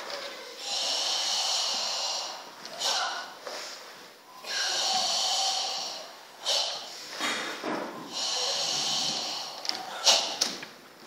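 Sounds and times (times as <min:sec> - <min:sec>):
hissing exhalations: 0:00.6 - 0:10.6
short sharp breath: 0:05.6 - 0:07.2.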